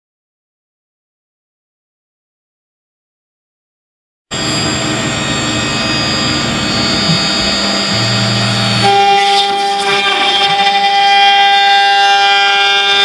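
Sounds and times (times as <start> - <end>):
machine spindle whine: 4.3 - 13.0
router milling wood: 4.3 - 13.0.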